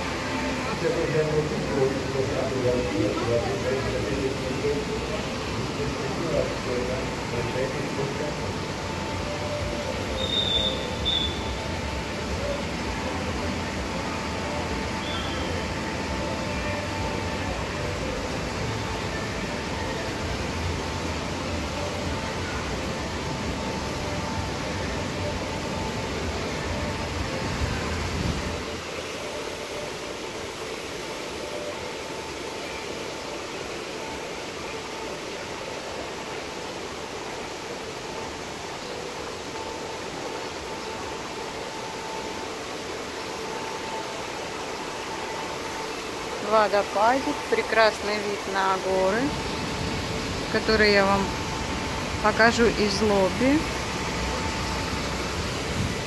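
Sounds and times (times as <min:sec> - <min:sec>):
rushing water from waterfall: 0:00.0 - 0:56.0
short high whistles: 0:10.2 - 0:11.5.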